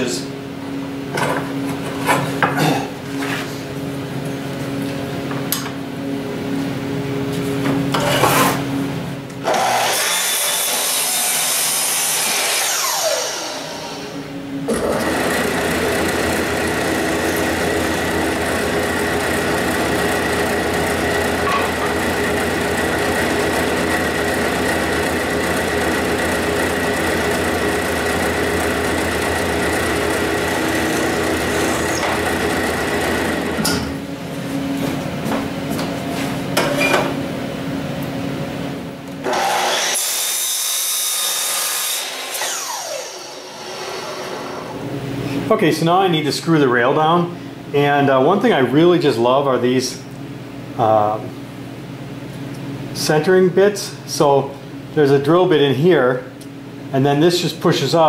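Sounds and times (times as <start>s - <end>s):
miter saw cutting wood: 9.4s - 33.7s, 39.2s - 44.8s
drill press whine: 9.4s - 34.0s, 39.2s - 40.2s, 42.0s - 45.0s.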